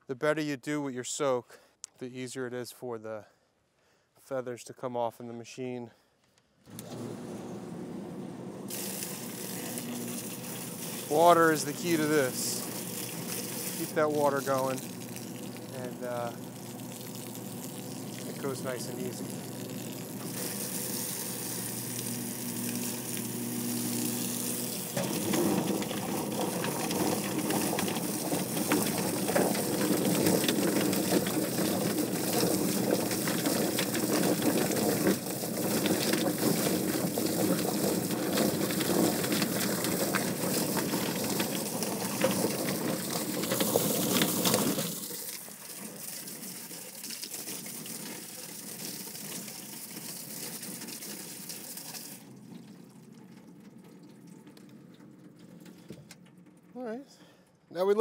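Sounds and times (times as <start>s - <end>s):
hose water splashing: 8.6s - 57.0s
plucker machine churning and knocking: 8.7s - 45.1s.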